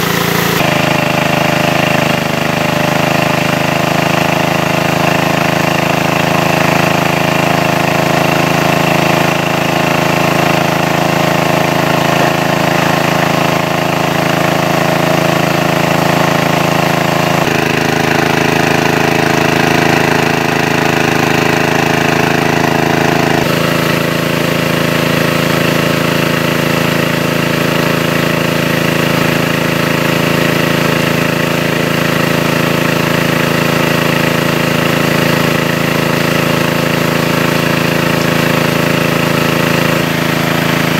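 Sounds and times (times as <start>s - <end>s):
water pump engine running: 0.0s - 40.9s.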